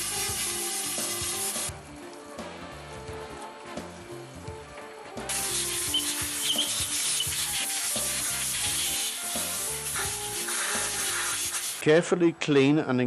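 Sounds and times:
compressed air hissing: 0.0s - 1.8s, 5.2s - 12.0s
soft background music: 0.0s - 13.0s.

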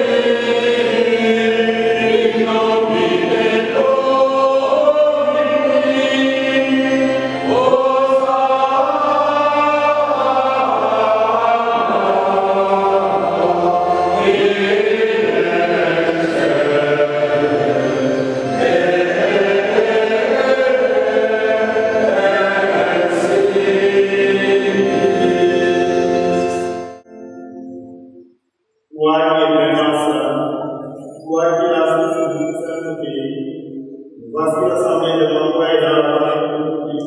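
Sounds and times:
choir singing a hymn: 0.0s - 27.0s.

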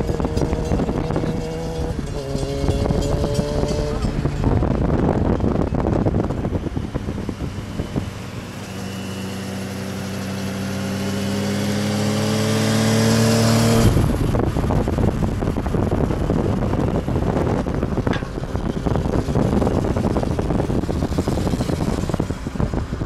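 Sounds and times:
motorcycle engine accelerating: 0.0s - 23.0s
wind rushing over microphone: 0.0s - 23.0s.

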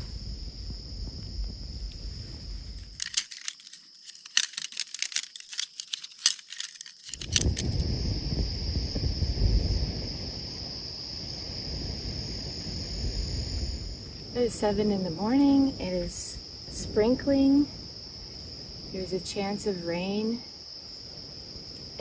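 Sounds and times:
steady low rumbling: 0.0s - 3.0s, 7.2s - 19.2s
crickets trilling: 0.0s - 22.0s
metallic jingling and clinking: 2.9s - 7.6s.

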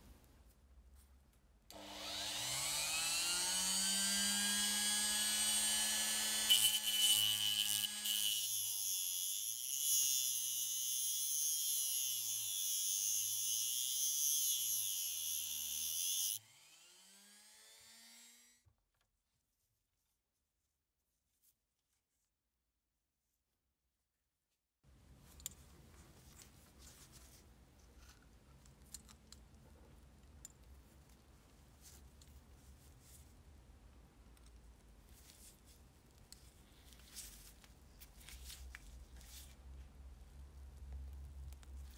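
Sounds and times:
rotary tool grinding metal: 1.8s - 16.4s.

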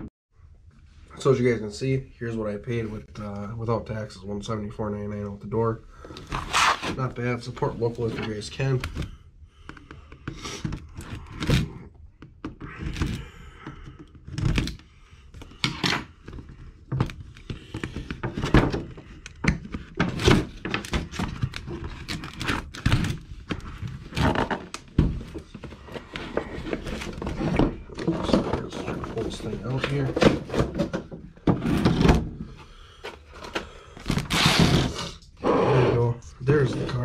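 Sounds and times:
cardboard scraping: 6.2s - 7.2s, 20.0s - 32.4s, 33.3s - 35.8s.

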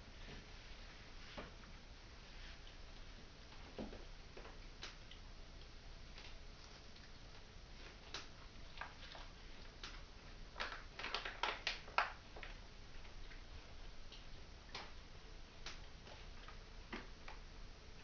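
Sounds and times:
plastic packet crinkling: 8.1s - 13.1s.

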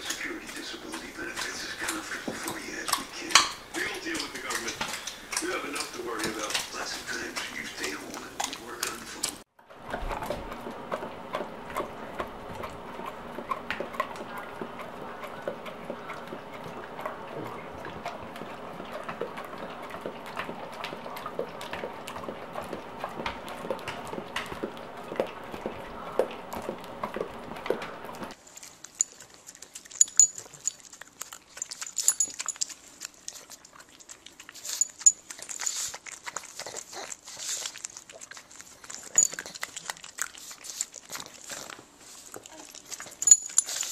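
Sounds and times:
steady hum: 0.0s - 28.4s
dogs smacking and licking mouths: 0.0s - 43.9s.

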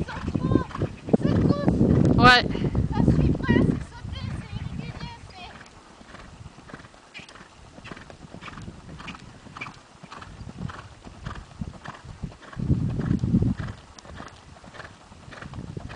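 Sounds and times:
hoofbeats on sand: 3.1s - 15.9s.

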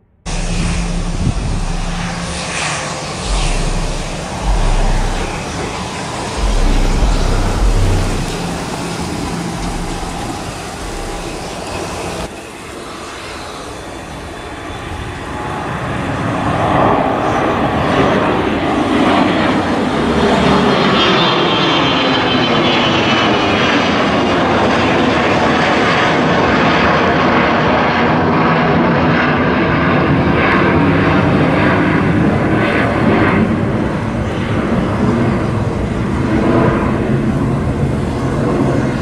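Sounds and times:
jet engine roar: 0.0s - 39.0s
wind buffeting microphone: 0.3s - 12.3s.

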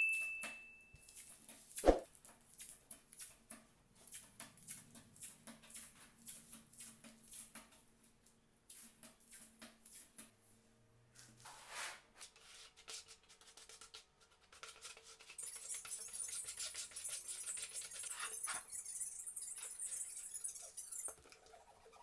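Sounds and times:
brief scrape: 1.8s - 2.1s, 11.4s - 12.1s.

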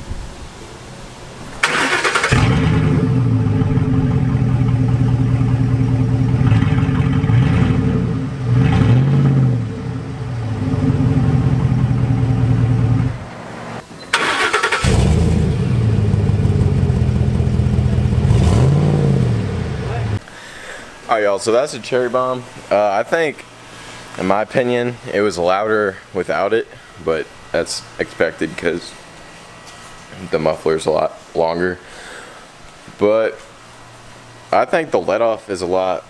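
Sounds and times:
engine cranking: 1.6s - 5.0s, 14.1s - 15.5s
engine idling and revving: 1.6s - 13.8s, 14.6s - 20.2s.

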